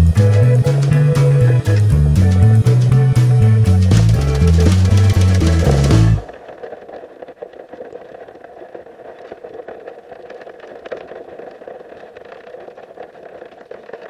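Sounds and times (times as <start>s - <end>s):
faint underwater crackles and clicks: 3.8s - 14.0s
muffled underwater water noise: 4.9s - 14.0s.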